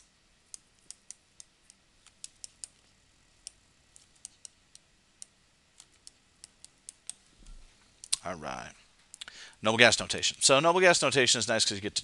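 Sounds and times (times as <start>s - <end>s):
stylus clicking on tablet screen: 0.0s - 8.2s.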